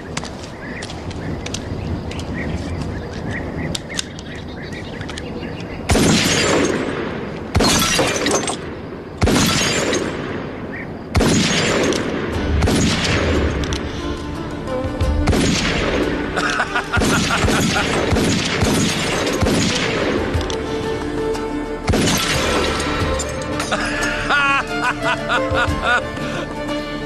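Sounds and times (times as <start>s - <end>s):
film music with held notes: 11.2s - 27.0s.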